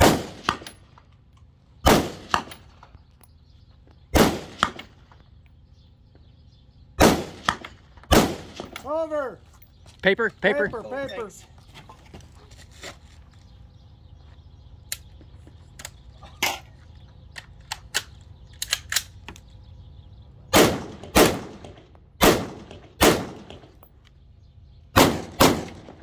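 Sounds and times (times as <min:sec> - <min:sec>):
distant gunshot cracks: 0:00.0 - 0:00.8, 0:01.8 - 0:02.6, 0:04.1 - 0:05.0, 0:07.0 - 0:08.8, 0:20.5 - 0:23.6, 0:25.0 - 0:26.0
loud rifle shots: 0:00.0 - 0:00.8, 0:01.8 - 0:02.7, 0:04.1 - 0:05.0, 0:07.0 - 0:08.8, 0:20.5 - 0:23.7, 0:24.9 - 0:26.0.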